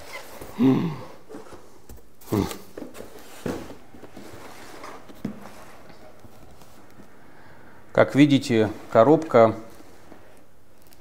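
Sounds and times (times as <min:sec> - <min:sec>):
man humming: 0:00.5 - 0:01.2.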